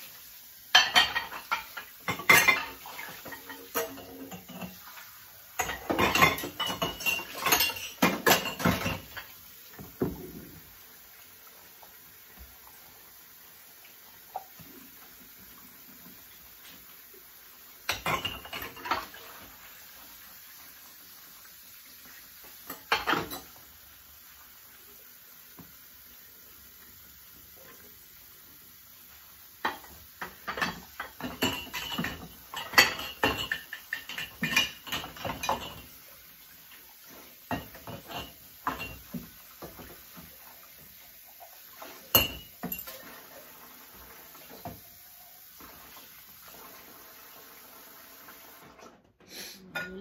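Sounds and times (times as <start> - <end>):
dishes clinking in a sink: 0.7 - 10.6, 17.8 - 19.6, 22.4 - 23.6, 29.6 - 36.1, 37.1 - 40.9, 41.7 - 44.9, 49.6 - 50.0.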